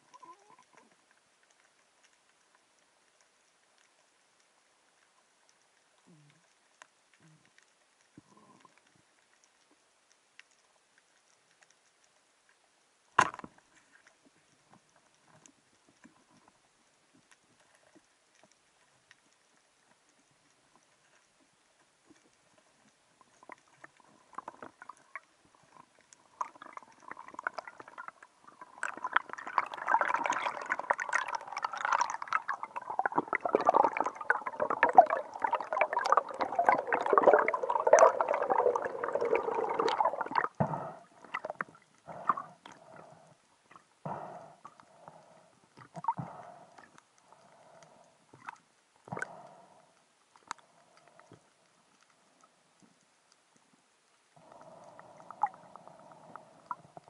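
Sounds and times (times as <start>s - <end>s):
bubbles crackling: 23.2s - 49.5s, 54.4s - 57.0s
water rushing underwater: 23.3s - 49.8s, 54.4s - 57.0s.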